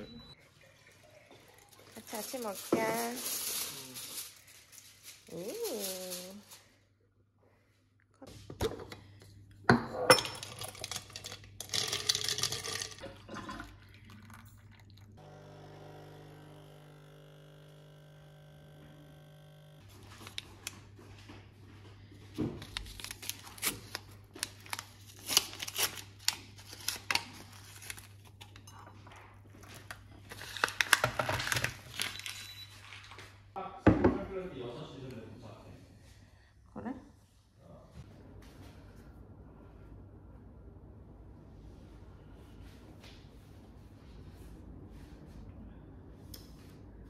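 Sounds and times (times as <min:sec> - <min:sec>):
water pouring from kettle: 0:00.4 - 0:02.2, 0:12.3 - 0:15.2
paper sachet rustling: 0:01.6 - 0:06.7, 0:22.6 - 0:28.3
coffee capsules clattering in jar: 0:10.2 - 0:13.0
coffee machine pump buzzing: 0:14.2 - 0:19.9.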